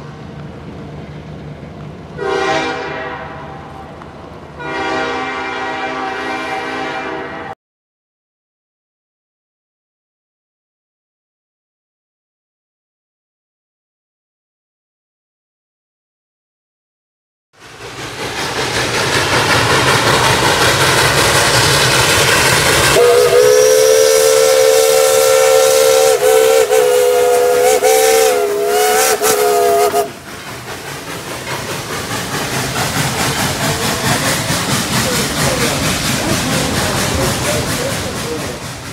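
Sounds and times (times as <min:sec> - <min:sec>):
diesel locomotive running: 0:00.0 - 0:07.6, 0:17.6 - 0:38.9
train air horn chord: 0:02.2 - 0:03.9, 0:04.6 - 0:07.6, 0:23.0 - 0:30.1.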